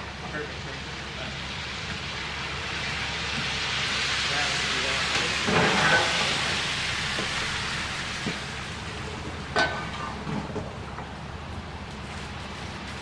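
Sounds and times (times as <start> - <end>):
tyres hissing through wet slush: 2.2 - 8.0.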